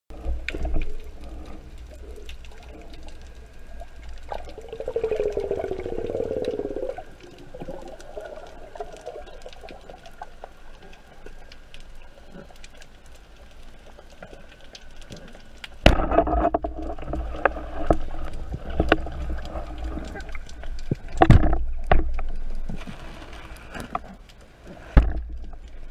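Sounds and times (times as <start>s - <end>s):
low underwater rumble: 0.1s - 11.4s
crackling clicks: 0.1s - 25.9s.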